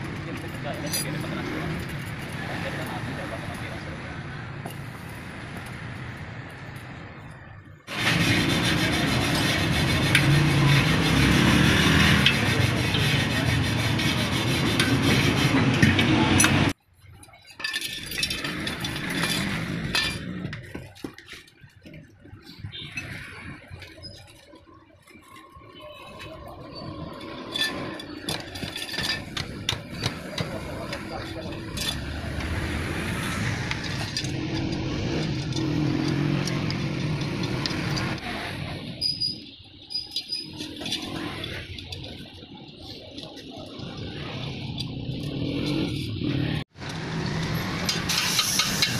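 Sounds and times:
hands rubbing metal wheel rim: 7.9s - 16.7s
metal spokes clinking: 14.4s - 46.3s.

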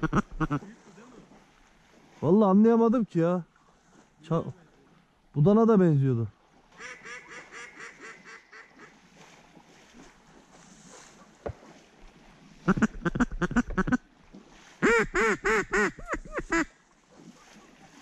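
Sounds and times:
duck quacking: 0.0s - 0.6s, 6.8s - 8.9s, 12.7s - 14.0s, 14.8s - 16.7s.

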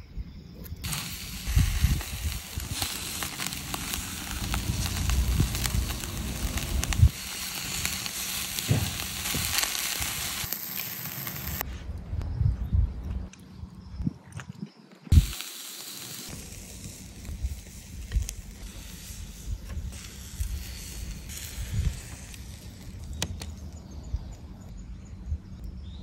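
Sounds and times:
meat sizzling on grill: 0.8s - 11.6s, 15.1s - 23.1s.

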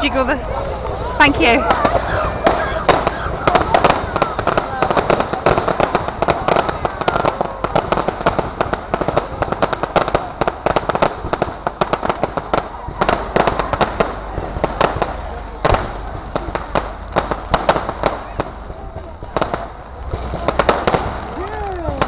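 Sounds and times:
fireworks popping and cracking: 0.0s - 22.0s
loud firework bang: 1.5s - 22.0s.

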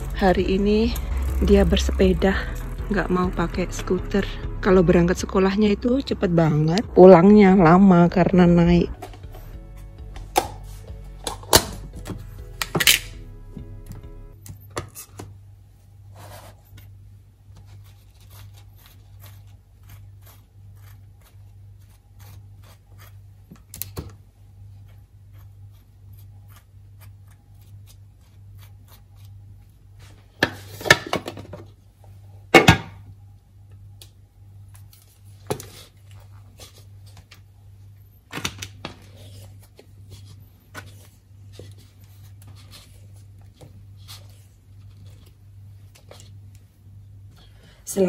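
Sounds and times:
steady low hum: 0.0s - 14.7s
knife scraping butter on bread: 17.7s - 23.3s, 24.9s - 29.4s.

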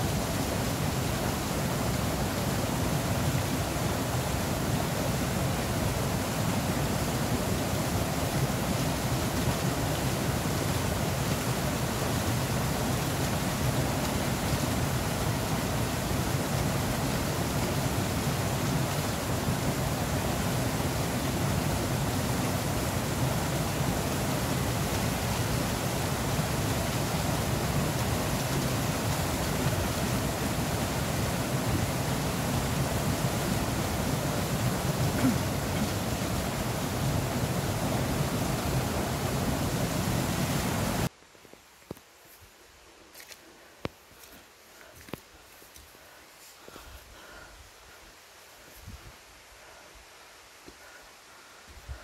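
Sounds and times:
flowing water rushing: 0.0s - 41.1s.

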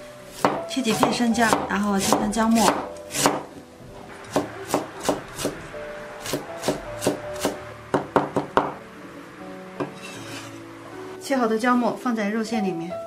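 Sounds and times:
soft background music: 0.0s - 13.0s
cleaver chopping on wooden board: 0.4s - 3.5s.

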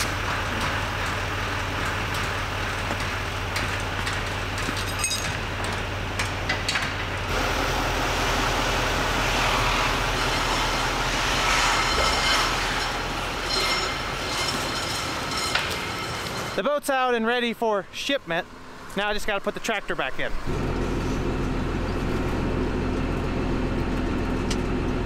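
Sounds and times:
trailer hitch clicks and clanks: 0.0s - 7.3s, 11.8s - 16.6s
pickup truck engine running: 0.0s - 12.0s, 18.5s - 25.0s.

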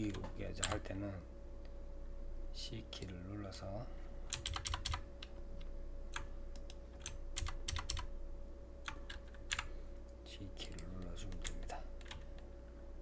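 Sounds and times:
faint steady hum: 0.0s - 13.0s
keyboard keystrokes: 4.3s - 5.3s, 6.1s - 8.1s, 10.6s - 12.4s.

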